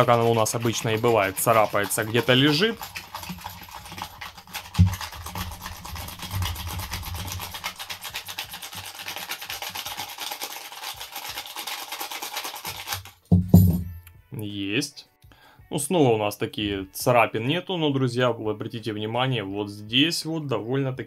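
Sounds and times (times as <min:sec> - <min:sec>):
keys scraping phone screen: 0:00.0 - 0:10.0.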